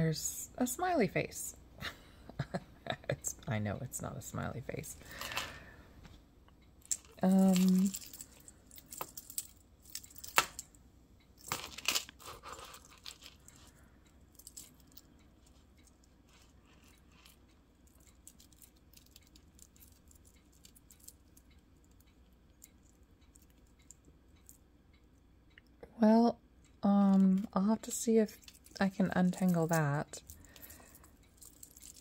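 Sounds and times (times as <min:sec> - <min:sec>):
beaded necklace clicking and rustling: 0:06.8 - 0:25.0, 0:27.1 - 0:32.0.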